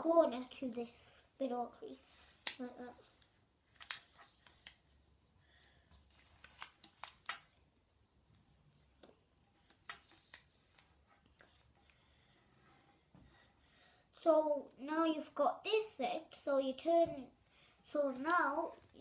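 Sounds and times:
paper crinkling and rustling: 2.3 - 5.0, 6.0 - 7.6, 8.8 - 11.4.

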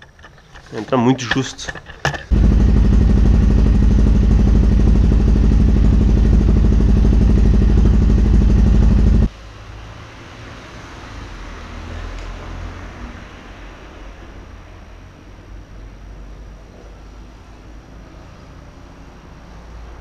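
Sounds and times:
motorcycle engine idling: 2.3 - 9.3.

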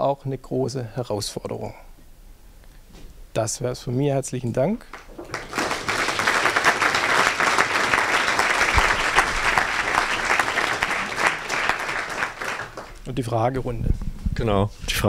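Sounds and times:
audience applauding: 4.9 - 13.4.

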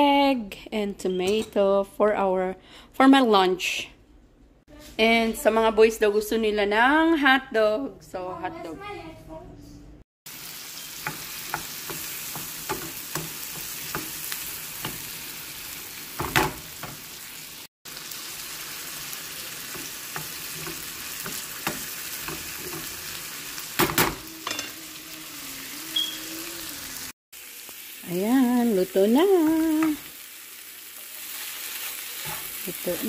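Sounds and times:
vegetables sizzling in oil: 10.3 - 33.0.

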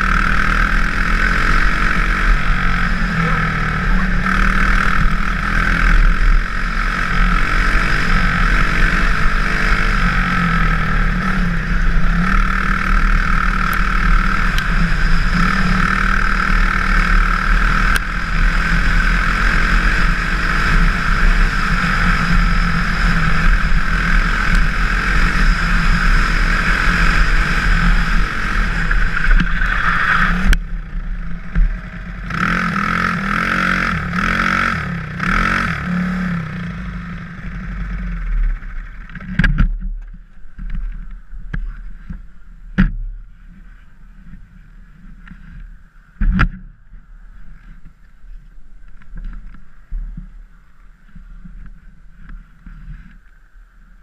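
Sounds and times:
kart engine running hard: 0.0 - 39.8.

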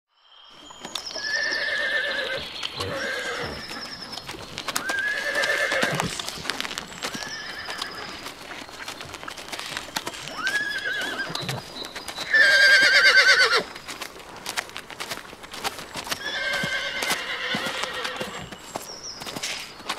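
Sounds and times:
hooves clip-clopping: 0.4 - 19.9
horses whinnying: 1.2 - 8.6, 9.4 - 13.8, 16.0 - 18.6.

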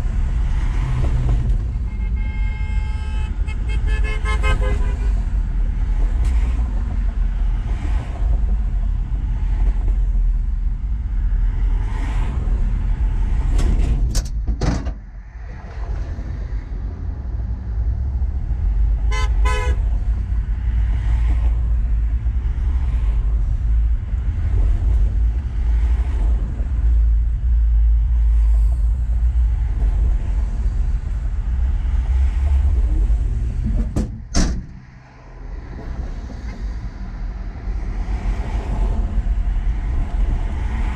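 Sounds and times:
cars passing on highway: 0.0 - 40.9
car horn toots: 1.8 - 5.1, 19.1 - 19.8.

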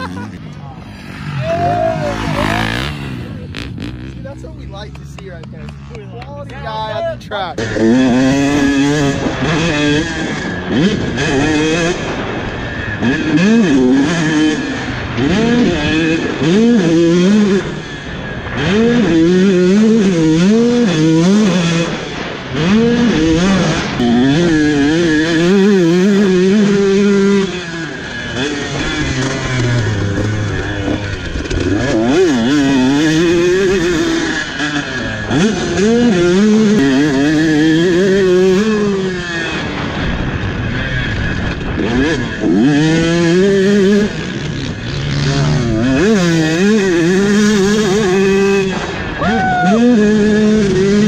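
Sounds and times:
dirt bike engine revving: 0.0 - 51.0.

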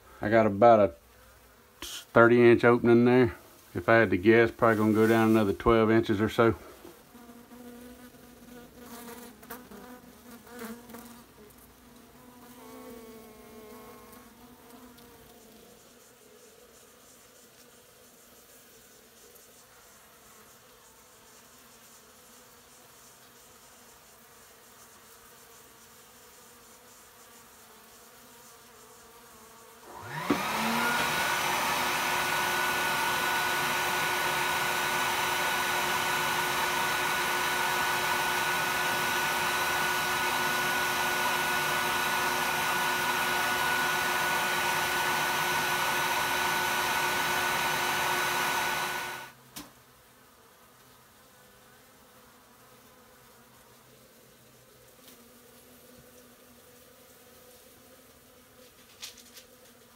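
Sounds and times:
bees humming: 1.0 - 49.4
vacuum motor whining: 29.9 - 49.3.

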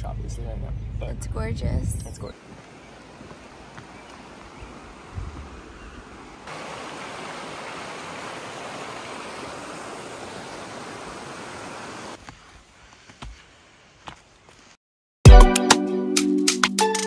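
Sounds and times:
water rushing over rocks: 2.4 - 12.2.

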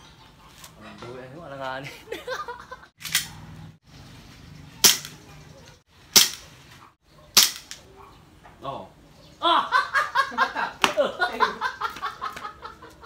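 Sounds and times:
airsoft pistol shots: 4.8 - 5.2, 6.1 - 6.5, 7.3 - 7.8.

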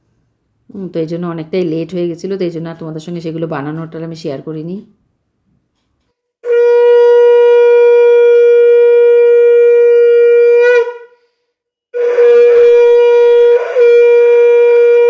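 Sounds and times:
conch shell blasts: 6.4 - 11.2, 12.0 - 15.0.

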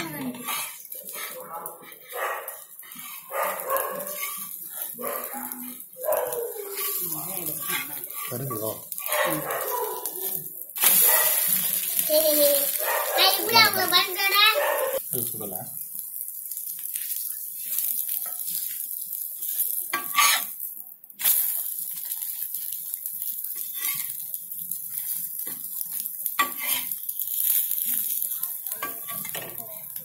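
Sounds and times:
spatula scraping on griddle: 0.0 - 15.0, 16.9 - 30.0
omelette sizzling: 0.0 - 30.0.

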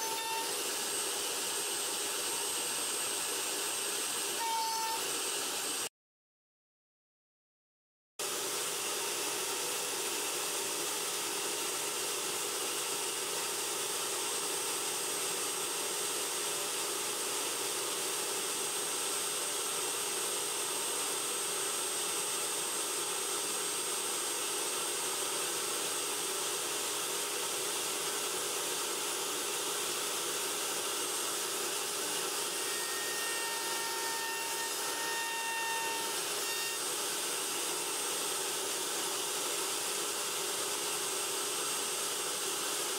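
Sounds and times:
router cutting wood: 0.0 - 5.9, 8.2 - 42.9.

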